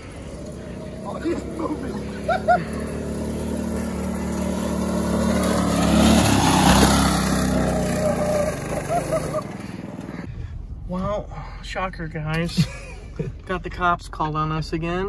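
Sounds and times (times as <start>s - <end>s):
go-kart engine passing: 0.0s - 10.3s.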